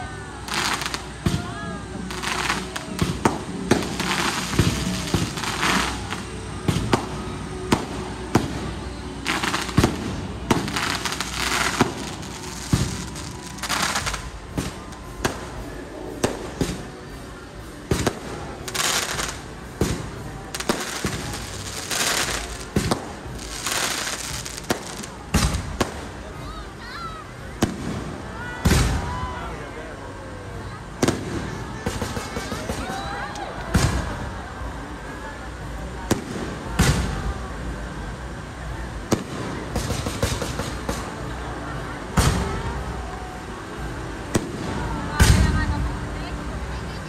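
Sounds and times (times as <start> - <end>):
fireworks hissing and crackling: 0.0 - 47.0
fireworks bangs: 0.4 - 17.2, 17.9 - 26.4, 27.6 - 29.3, 31.0 - 34.4, 36.1 - 37.4, 39.0 - 41.4, 42.0 - 43.0, 44.2 - 46.1.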